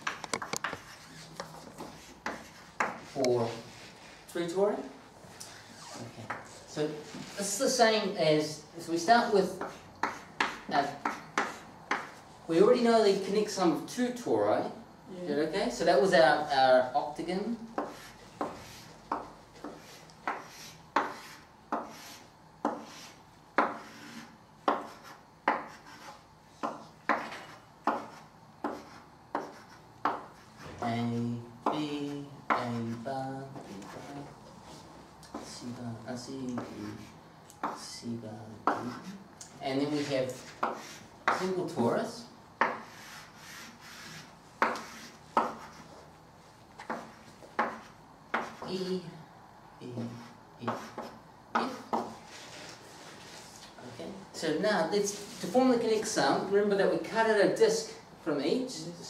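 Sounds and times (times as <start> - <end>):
chalk scraping on blackboard: 0.0 - 4.4, 9.5 - 12.2, 17.8 - 30.8, 31.6 - 35.7, 38.6 - 39.2, 39.8 - 41.9, 42.6 - 46.1, 46.8 - 48.7, 50.2 - 53.6.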